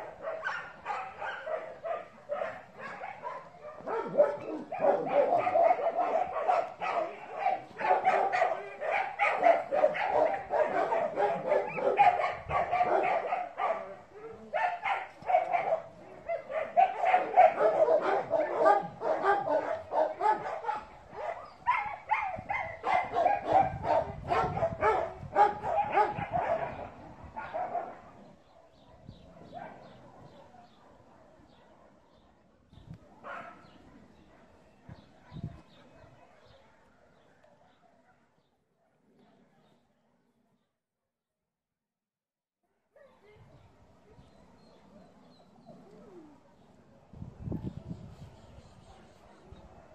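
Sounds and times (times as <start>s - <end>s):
dogs barking: 0.0s - 32.3s, 33.2s - 36.7s.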